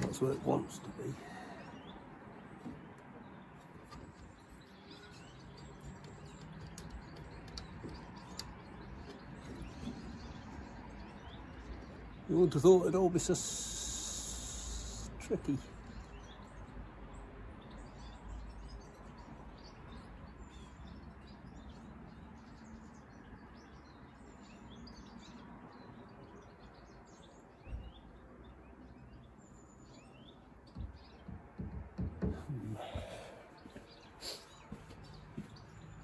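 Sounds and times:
small birds chirping: 0:00.0 - 0:36.0
steady outdoor hiss: 0:12.0 - 0:16.4
soft knocks: 0:30.7 - 0:33.9.

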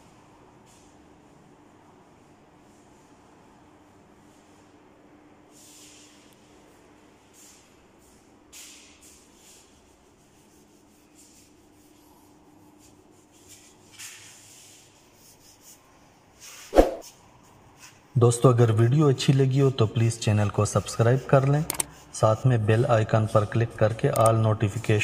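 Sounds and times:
faint scraping strokes: 0:07.2 - 0:17.2.

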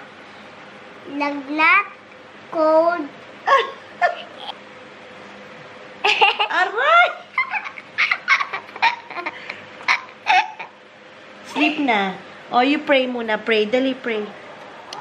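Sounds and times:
person crying out: 0:03.5 - 0:04.4
boy and woman giggling: 0:03.5 - 0:04.6, 0:06.0 - 0:10.8.

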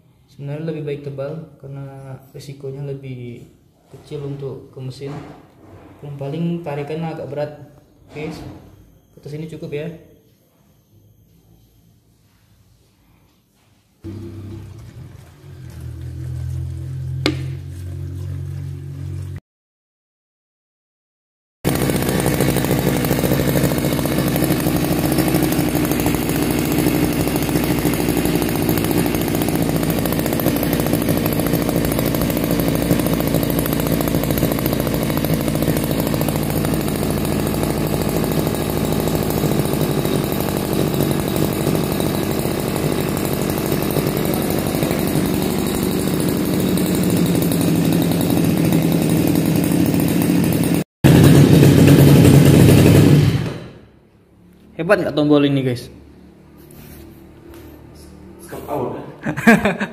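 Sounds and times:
brush cutter engine idling: 0:14.1 - 0:19.4, 0:21.7 - 0:53.7.

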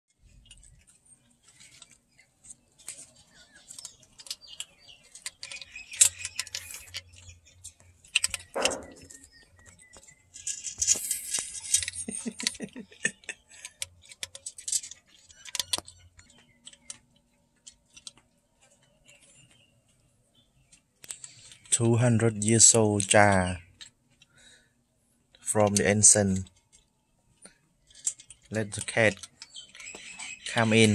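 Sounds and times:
rustling: 0:00.1 - 0:21.8
cat eating in ceramic jar: 0:00.2 - 0:18.3.

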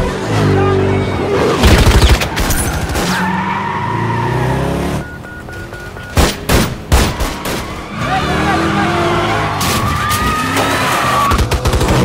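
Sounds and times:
car engine and tyre noise: 0:00.0 - 0:12.0
short electronic beeps: 0:04.8 - 0:06.2.

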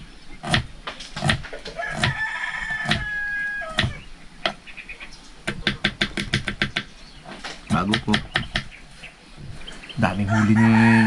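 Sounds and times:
rooster crowing: 0:01.7 - 0:04.0, 0:10.2 - 0:11.0.

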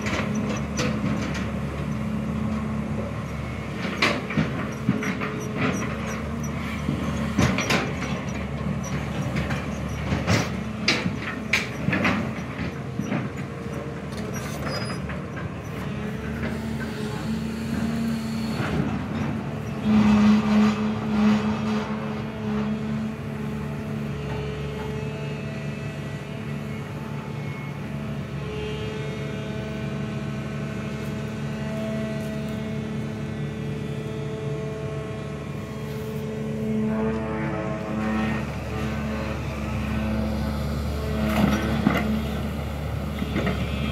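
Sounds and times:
excavator diesel engine running: 0:00.0 - 0:43.9
sharp knocks and clatter: 0:03.0 - 0:15.6.

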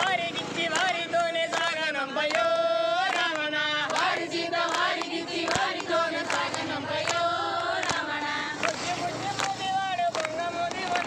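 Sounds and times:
group singing devotional song: 0:00.0 - 0:11.0
hand claps: 0:00.7 - 0:11.0.

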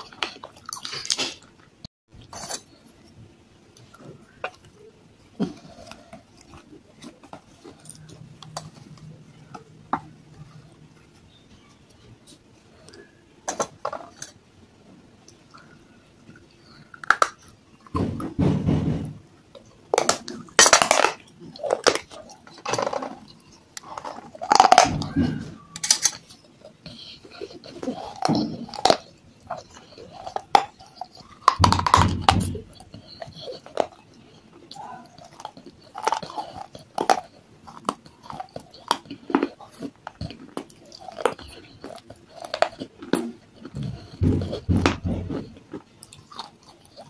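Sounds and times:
clay cup crunching being chewed: 0:00.0 - 0:14.4, 0:15.2 - 0:18.0, 0:19.5 - 0:47.0.

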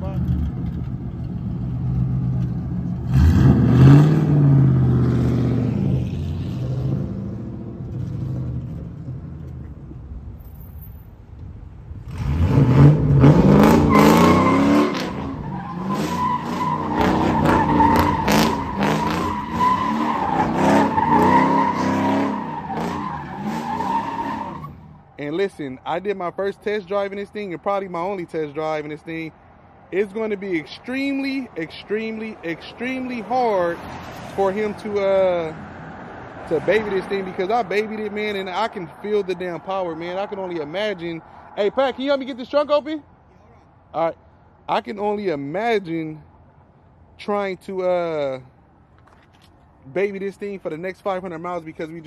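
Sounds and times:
car engine revving: 0:00.0 - 0:09.6, 0:12.0 - 0:25.0
tire squeal: 0:12.1 - 0:25.2.

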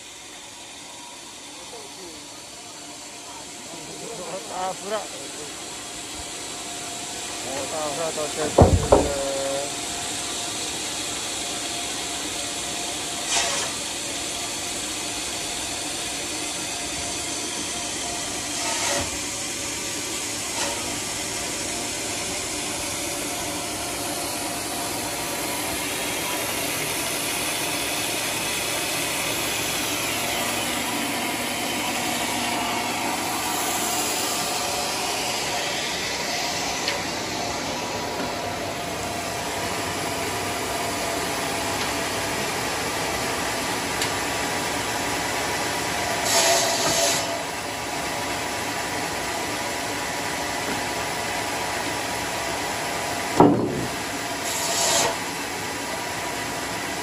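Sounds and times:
sawmill whirring: 0:00.0 - 0:57.0
short knocks: 0:08.5 - 0:09.4.

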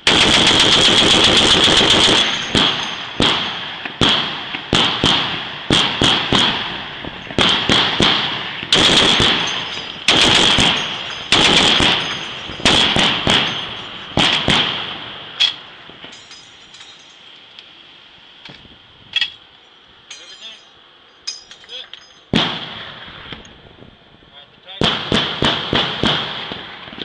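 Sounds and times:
gun shots with echoing tail: 0:00.0 - 0:15.2, 0:22.4 - 0:23.0, 0:24.8 - 0:26.8.

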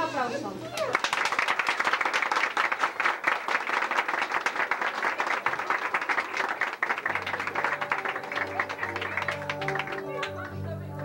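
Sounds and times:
crowd applauding: 0:00.7 - 0:10.6
music: 0:07.0 - 0:11.0.

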